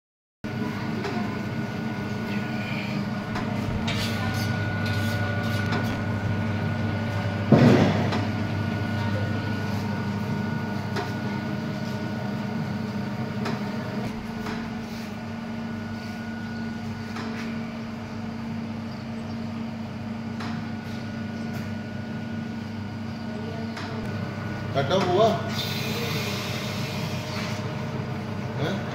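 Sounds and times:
hydraulic press motor hum: 0.5 - 28.9
loud machine clunk: 7.2 - 9.2.

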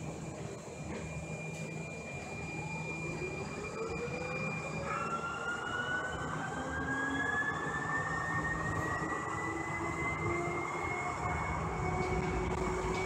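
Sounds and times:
electric train motor whine: 0.0 - 13.0
train running rumble: 10.0 - 13.0.

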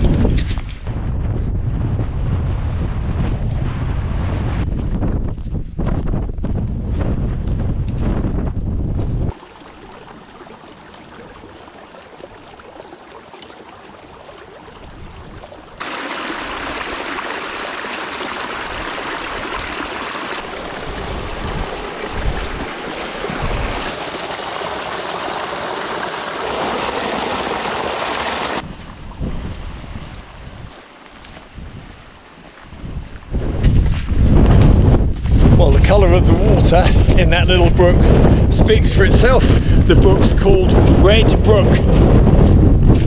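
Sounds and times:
wind buffeting microphone: 0.0 - 11.6, 20.4 - 24.0, 28.5 - 30.8, 31.5 - 32.0, 32.6 - 43.0
brook water rushing: 9.3 - 28.7.

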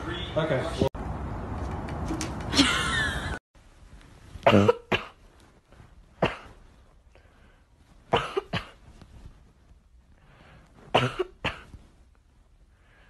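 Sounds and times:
person coughing: 4.4 - 5.2, 6.2 - 6.6, 8.1 - 8.8, 10.9 - 11.7.

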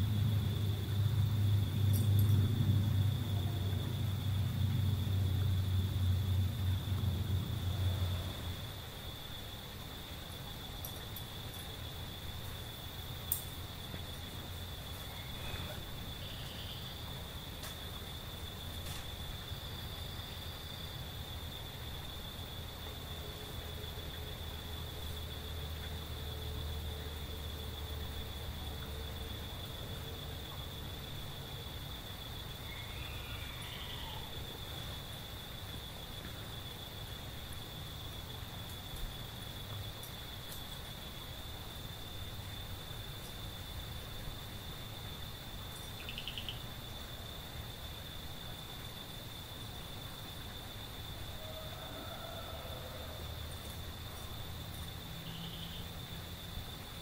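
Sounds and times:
insects trilling: 0.0 - 57.0
insect trilling: 10.8 - 17.4, 32.0 - 35.2, 45.1 - 47.0, 50.5 - 56.5.

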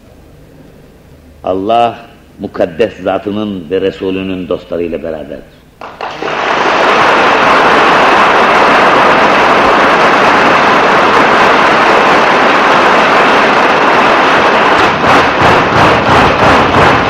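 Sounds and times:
large audience applauding: 5.8 - 17.0.

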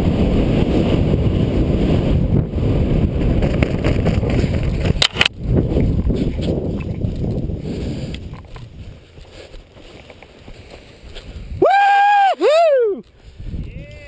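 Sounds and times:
wind rushing over microphone: 0.0 - 9.7, 10.4 - 14.0
brief crackle: 3.6 - 5.4.

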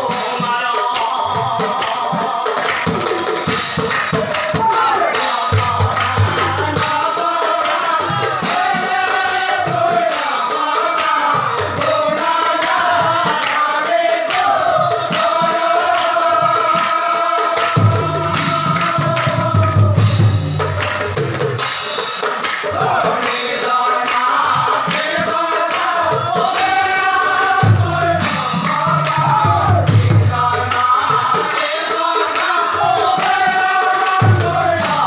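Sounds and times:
drum beats: 0.0 - 35.0
person singing devotional melody: 4.5 - 20.6, 22.6 - 35.0
jingling hand cymbals: 16.4 - 29.3.

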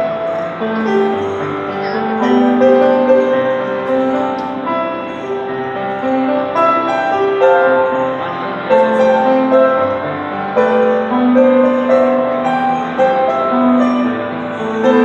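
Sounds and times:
live band with grand piano: 0.0 - 15.0.

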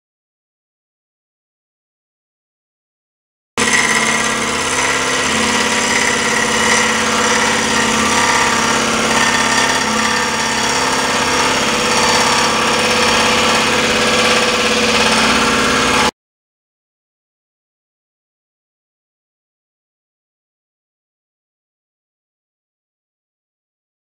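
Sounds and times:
scroll saw cutting wood: 3.6 - 16.1.

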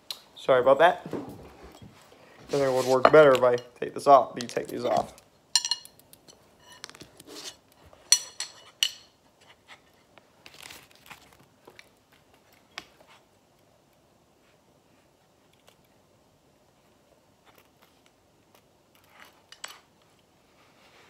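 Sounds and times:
metal knives clinking: 4.4 - 6.8, 8.1 - 9.2.

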